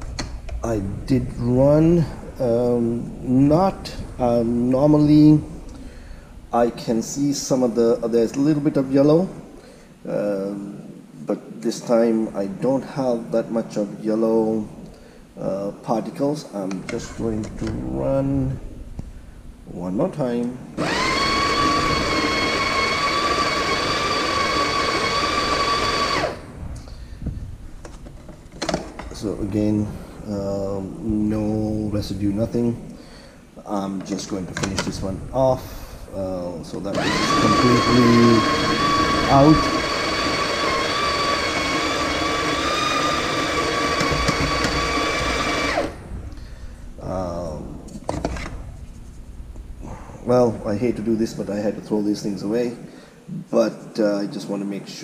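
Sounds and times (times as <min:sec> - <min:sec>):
coffee grinder grinding beans: 0:20.8 - 0:26.4, 0:37.0 - 0:46.0.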